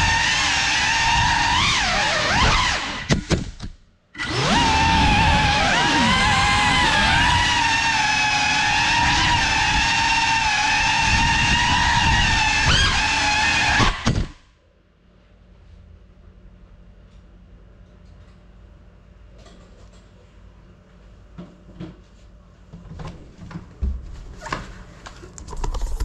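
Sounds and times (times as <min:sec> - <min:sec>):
drone propellers whining: 0:04.2 - 0:14.4.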